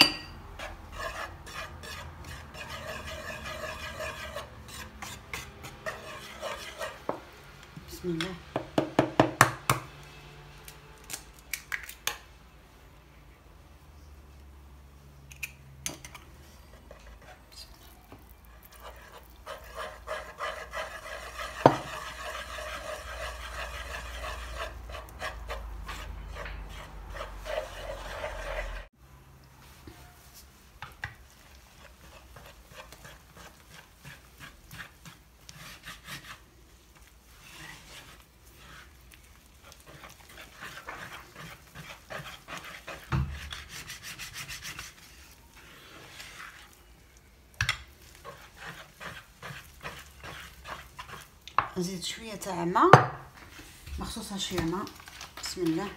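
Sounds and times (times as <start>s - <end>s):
whisk beating batter: 0.6s - 7.1s, 18.6s - 28.9s, 31.3s - 46.8s, 48.0s - 51.8s.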